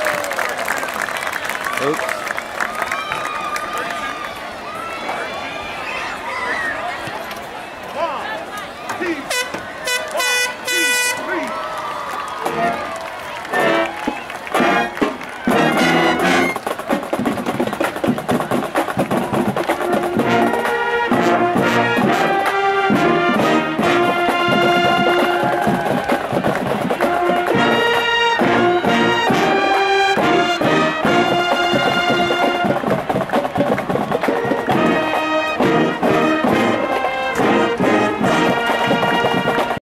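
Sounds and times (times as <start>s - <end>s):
marching band brass: 9.0s - 39.8s
marching band percussion: 12.4s - 39.8s.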